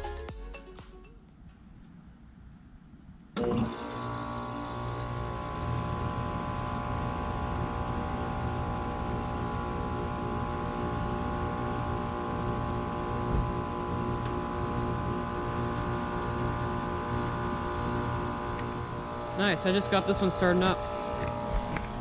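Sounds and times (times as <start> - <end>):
fan rushing: 1.3 - 22.0
heat pump compressor hum: 3.4 - 22.0.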